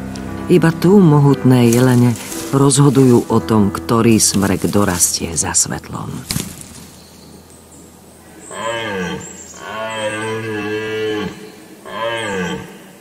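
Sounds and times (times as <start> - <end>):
deer stag roaring: 8.3 - 13.0.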